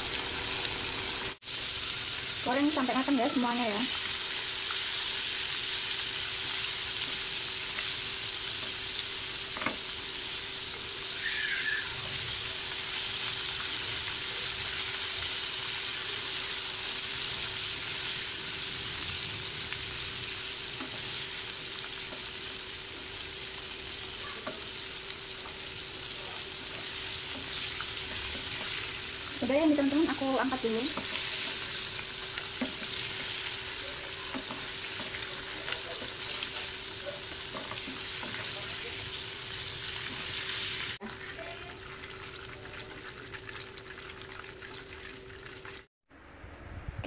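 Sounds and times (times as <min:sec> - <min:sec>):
deep-frying sizzle: 0:00.0 - 0:45.9
wooden spatula stirring: 0:30.9 - 0:39.0.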